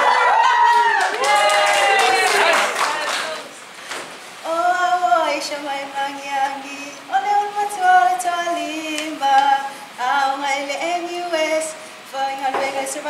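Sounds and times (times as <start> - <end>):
women singing unaccompanied: 4.4 - 13.0.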